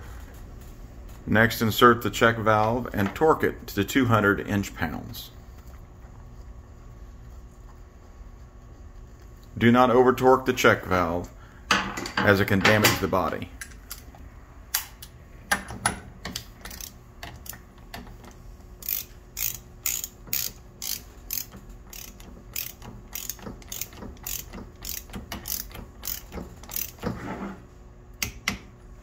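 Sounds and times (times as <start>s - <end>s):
ratcheting torque wrench clicking: 16.6s - 17.6s, 18.8s - 27.0s.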